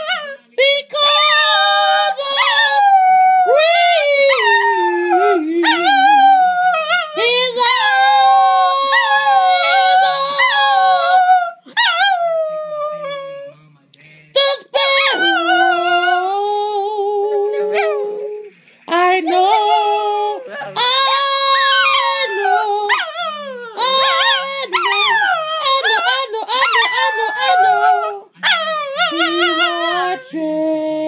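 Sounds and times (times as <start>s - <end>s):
dog howling: 1.0s - 13.5s, 14.8s - 18.4s, 19.2s - 30.4s
dog yelping: 19.2s - 30.0s.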